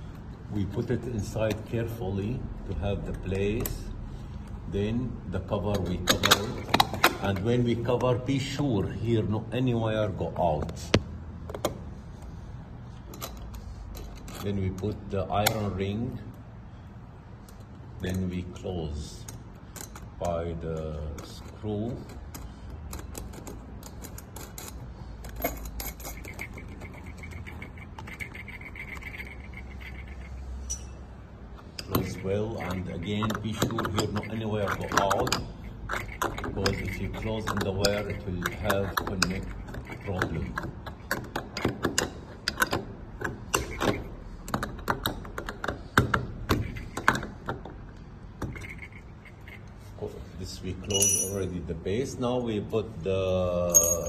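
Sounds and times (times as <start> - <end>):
metal fitting clicking and scraping: 5.5 - 8.2, 10.6 - 16.4, 19.2 - 51.6, 53.6 - 54.0.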